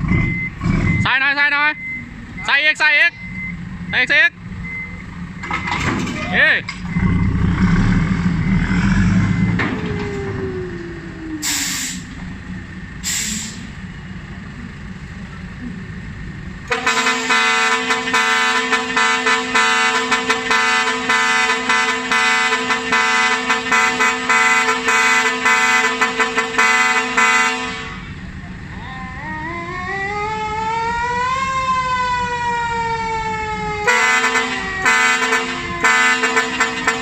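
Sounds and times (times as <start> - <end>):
deep engine rumble: 0.0 - 37.0
short air hisses: 11.4 - 12.1, 13.0 - 13.7
truck air horns chord: 16.7 - 28.2, 33.8 - 37.0.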